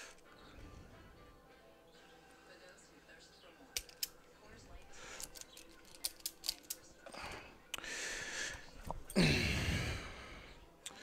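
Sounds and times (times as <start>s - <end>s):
person breathing: 0.0s - 1.3s, 4.9s - 5.5s, 7.1s - 11.0s.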